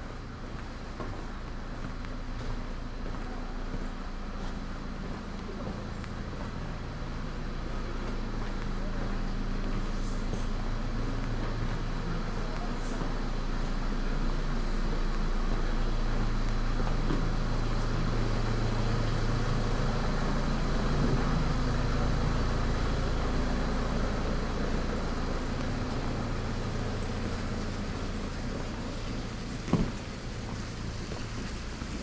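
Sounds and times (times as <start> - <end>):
street noise: 0.0 - 32.0
vehicle engine running: 0.0 - 32.0.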